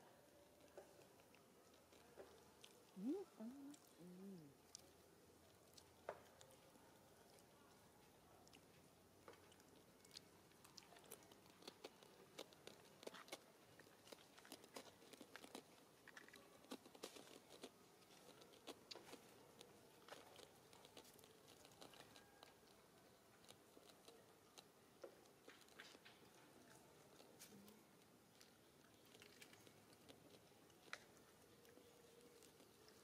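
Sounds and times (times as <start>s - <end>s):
monkeys chewing food: 0.5s - 33.0s.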